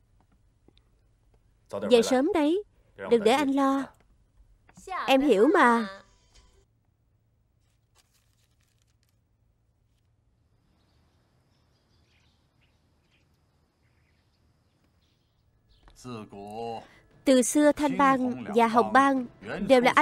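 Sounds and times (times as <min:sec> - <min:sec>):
faint bird chirps: 0:10.6 - 0:17.1.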